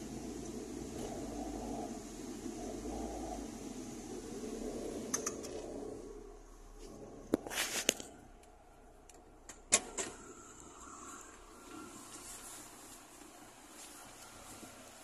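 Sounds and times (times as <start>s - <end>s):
car engine idling: 0.0s - 7.4s.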